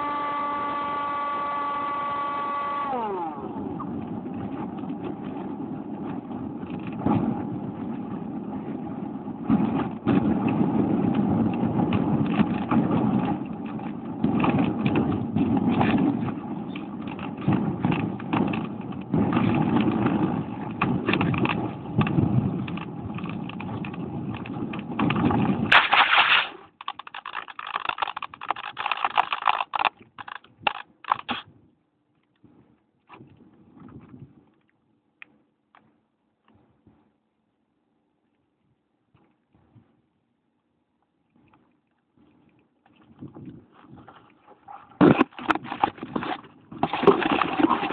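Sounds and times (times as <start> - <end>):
model plane motor: 0.0 - 5.4.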